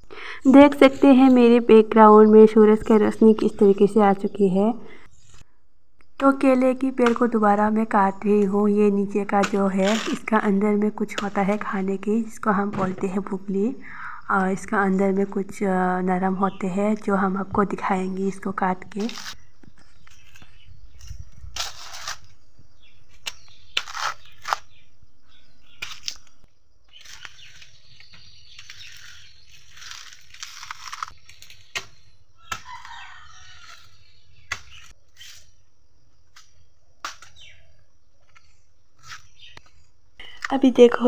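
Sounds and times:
plant layers ripping: 25.7 - 35.6
plant stem cracking and snapping: 25.8 - 26.4, 29.7 - 31.9.

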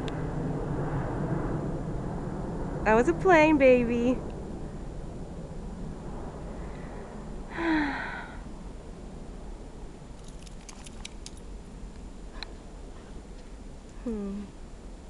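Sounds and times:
dog collar tags jingling: 10.2 - 11.5.

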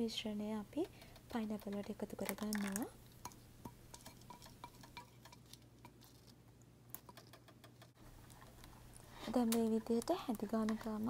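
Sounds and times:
saucepan clicks and ticks: 0.8 - 6.0.

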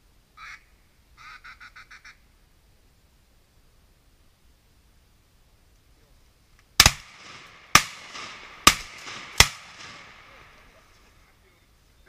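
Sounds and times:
shotgun shots with echo: 6.8 - 10.9.

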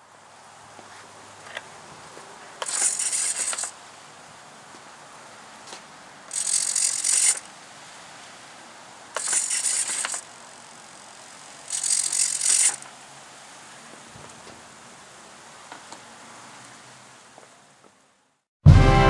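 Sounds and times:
servo mechanical buzzes: 2.6 - 3.8, 6.3 - 7.6, 9.2 - 13.0.

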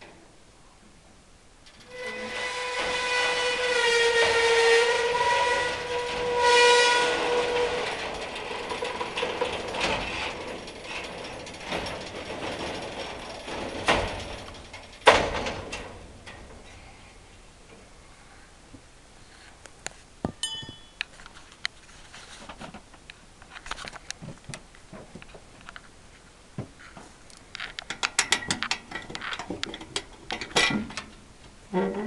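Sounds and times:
metal clanking and rattling: 1.6 - 17.0, 27.6 - 31.2
metal-on-metal squeal: 1.7 - 14.8
ratcheting: 7.1 - 16.5.

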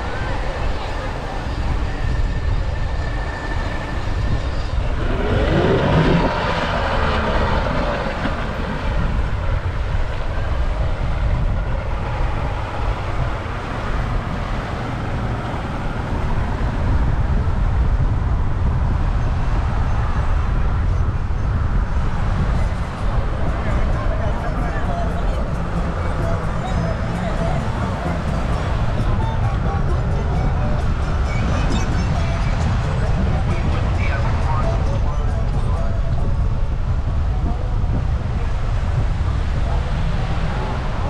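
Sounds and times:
beach ambience: 0.0 - 41.0
wind buffeting microphone: 0.0 - 41.0
pitched sound rising and bending: 2.5 - 9.5.

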